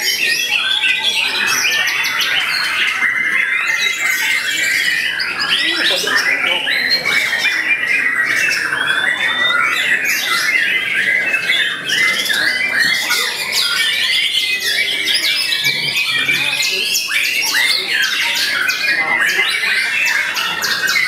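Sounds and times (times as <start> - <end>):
other songbirds singing: 0.0 - 21.0.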